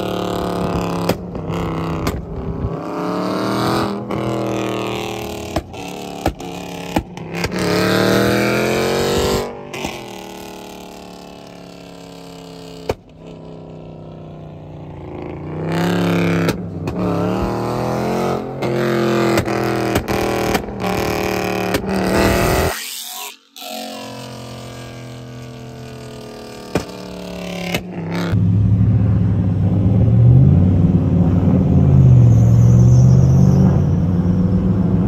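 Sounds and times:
car engine revving: 0.0s - 35.0s
exhaust pops and crackles: 0.3s - 2.7s, 5.2s - 7.7s, 12.8s - 13.4s, 16.4s - 17.6s, 19.3s - 22.6s, 26.5s - 28.4s.

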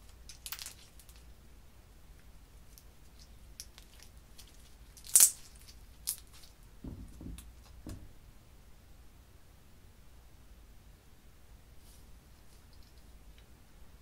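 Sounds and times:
loud crackling snap: 5.0s - 6.4s.

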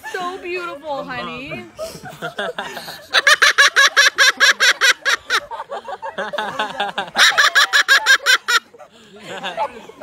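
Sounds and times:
cockatoo laugh-like calls: 7.0s - 8.7s.

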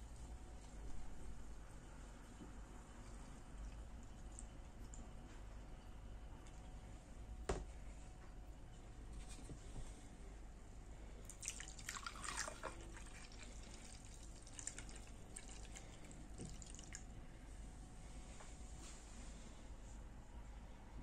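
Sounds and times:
juice pouring into a glass: 11.3s - 17.0s.

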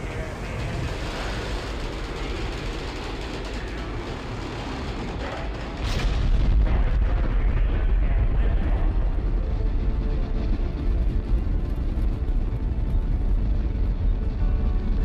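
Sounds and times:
rocket boosters igniting with rumble: 0.0s - 9.0s
rocket engines rushing: 0.0s - 15.0s.

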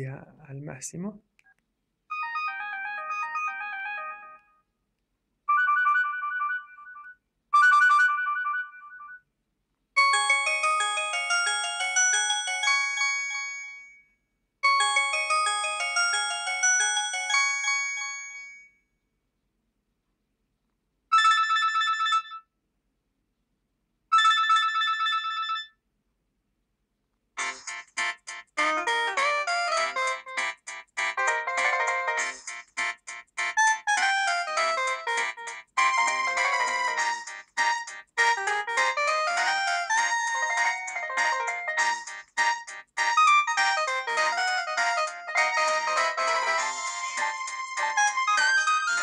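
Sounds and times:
phone ringtone melodies: 2.1s - 4.6s, 5.5s - 9.2s, 10.0s - 14.0s, 14.6s - 18.7s, 21.1s - 22.4s, 24.1s - 25.7s, 27.4s - 49.0s.

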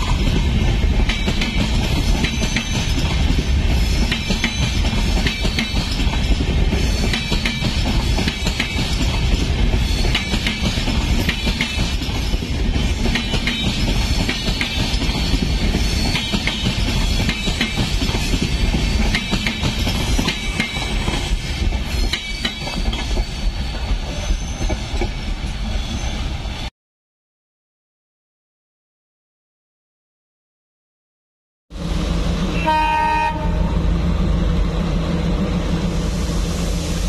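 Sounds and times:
train coaches rumbling past: 0.0s - 26.7s, 31.7s - 37.0s
wheels clicking over rail joints: 0.2s - 25.2s.

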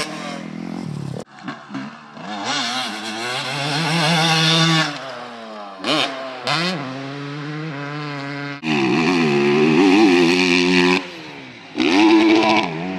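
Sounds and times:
dirt bike engines revving: 0.0s - 12.9s.

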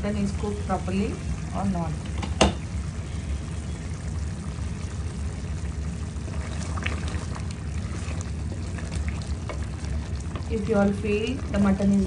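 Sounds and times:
stew bubbling in a pot: 0.0s - 12.0s
wooden spoon stirring gravy: 4.6s - 12.0s.

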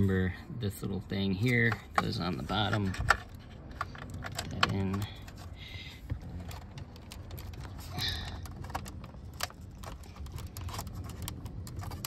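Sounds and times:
plastic connector clicks and rattles: 1.6s - 5.4s, 8.4s - 12.0s.

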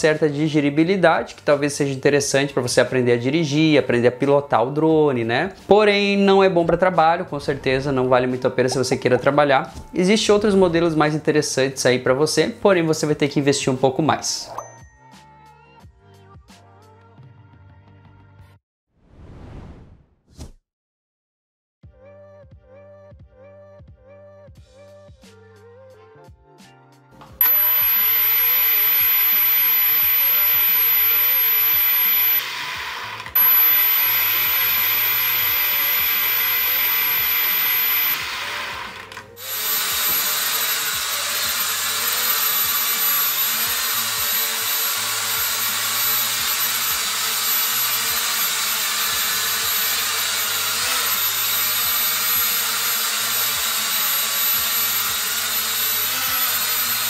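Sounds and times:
quadcopter motors buzzing: 27.4s - 57.0s.

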